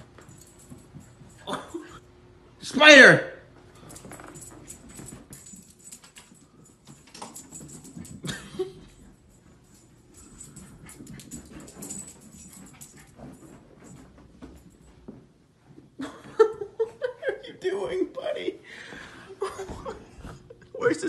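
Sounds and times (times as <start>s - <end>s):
dog paws scuffling on carpet: 0.0s - 1.8s, 3.5s - 17.2s.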